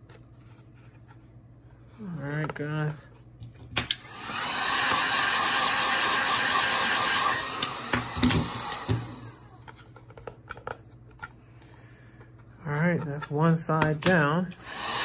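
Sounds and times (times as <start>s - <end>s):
heat gun blowing: 4.0s - 9.6s, 14.6s - 15.0s.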